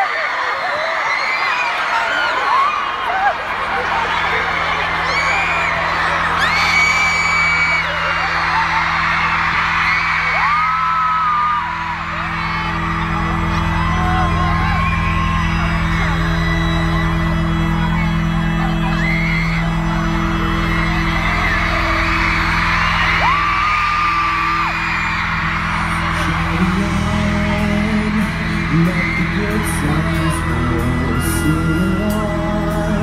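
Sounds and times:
crowd screaming and whooping: 0:00.0 - 0:33.0
synth drone with pulsing beat: 0:11.3 - 0:26.6.

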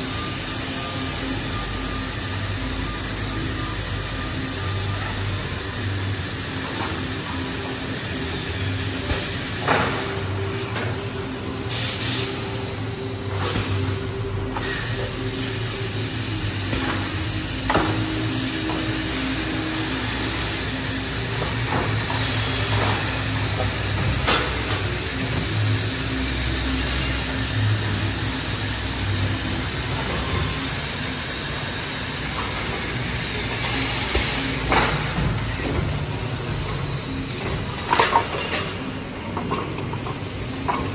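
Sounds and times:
wall saw motors humming: 0:14.3 - 0:37.8.

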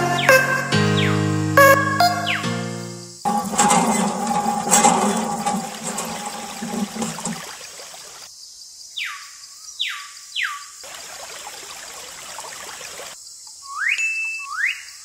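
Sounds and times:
water splashing into steel bowl: 0:03.3 - 0:08.3.

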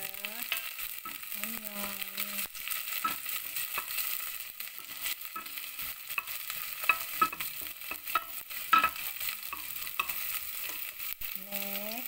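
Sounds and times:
onions sizzling in hot oil: 0:00.0 - 0:12.0
wooden spoon scraping and knocking pot: 0:02.9 - 0:11.0.

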